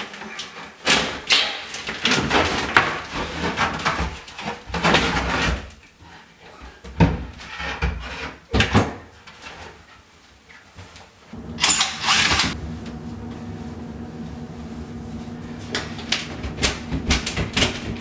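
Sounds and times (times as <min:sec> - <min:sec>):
steady low hum: 0:11.4 - 0:18.0.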